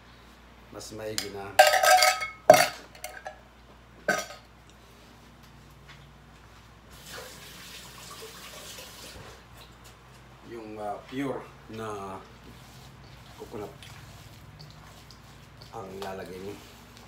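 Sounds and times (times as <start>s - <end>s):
kitchen tap running: 7.0s - 9.4s, 11.8s - 17.0s.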